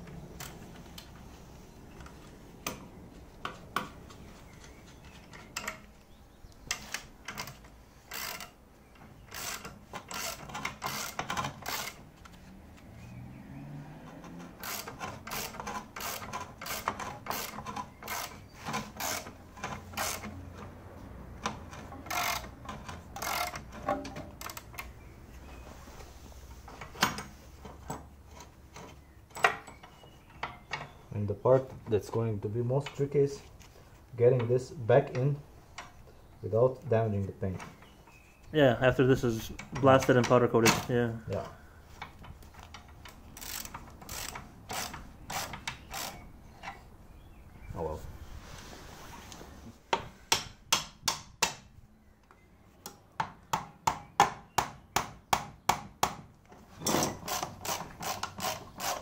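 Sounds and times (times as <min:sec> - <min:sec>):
ratchet wrench clicking: 0:07.3 - 0:08.6, 0:22.1 - 0:22.5, 0:23.2 - 0:23.6, 0:43.4 - 0:46.2.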